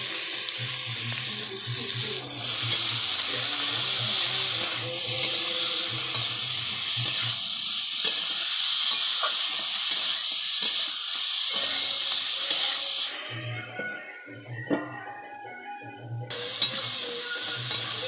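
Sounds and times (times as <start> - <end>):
chicken sizzling in a pan: 0.0 - 15.0, 16.3 - 18.0
spatula stirring in metal pan: 2.4 - 10.9.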